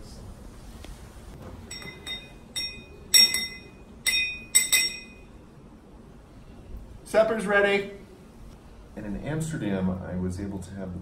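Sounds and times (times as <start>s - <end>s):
stirrer clinking in glass: 1.7s - 5.3s.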